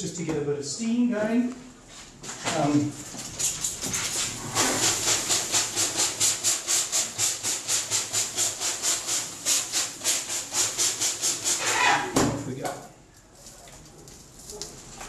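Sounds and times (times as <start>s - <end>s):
spray bottle hissing squirts: 3.3s - 12.0s.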